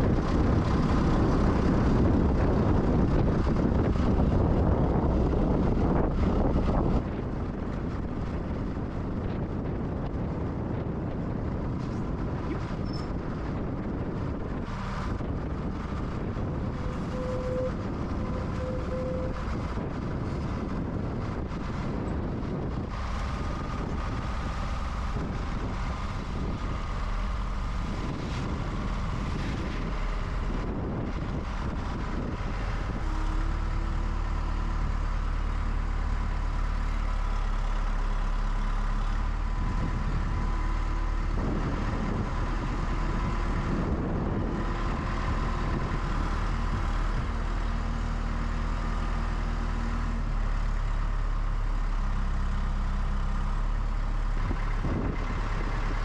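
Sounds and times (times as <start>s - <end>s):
telehandler engine running: 0.0s - 56.0s.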